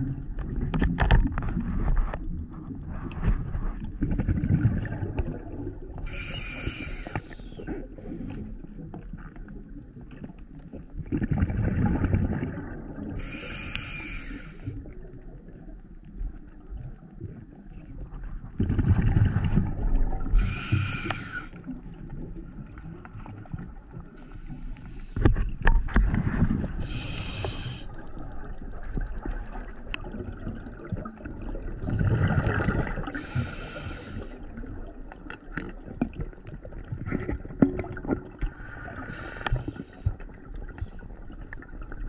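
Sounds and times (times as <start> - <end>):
rumbling exhaled bubbles: 0.0 - 6.1, 6.8 - 13.2, 14.7 - 24.2, 25.2 - 42.0
hissing regulator inhalations: 6.1 - 8.4, 13.2 - 14.7, 20.4 - 21.6, 26.8 - 27.9, 33.2 - 34.3, 38.5 - 40.0.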